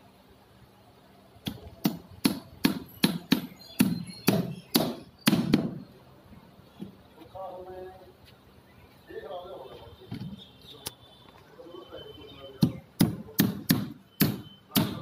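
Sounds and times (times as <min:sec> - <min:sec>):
hammer striking wooden box: 0:01.5 - 0:05.8, 0:12.6 - 0:15.0.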